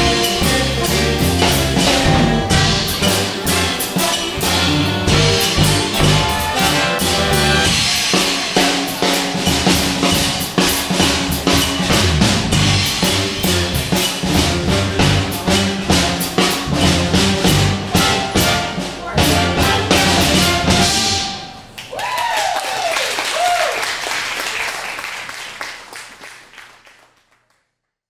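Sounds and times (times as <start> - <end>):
hard drum hits: 0.0 - 21.7
jazz big band playing: 0.0 - 21.8
crowd whooping: 21.4 - 25.0
applause and cheering: 21.7 - 27.8.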